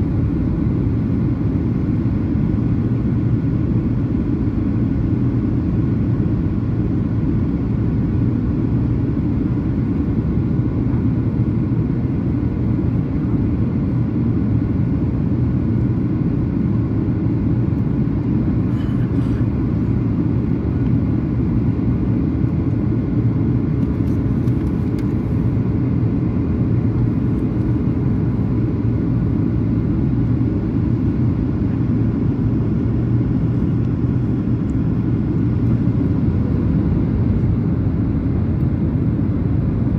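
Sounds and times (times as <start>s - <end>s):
faint constant hum: 0.0s - 39.9s
jet engine drone in cabin: 0.0s - 39.9s.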